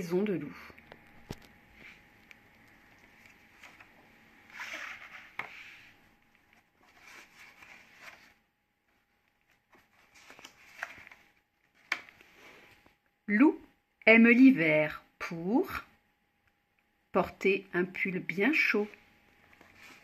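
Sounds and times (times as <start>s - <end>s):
paper pages rustling: 1.0s - 13.0s, 19.4s - 20.0s.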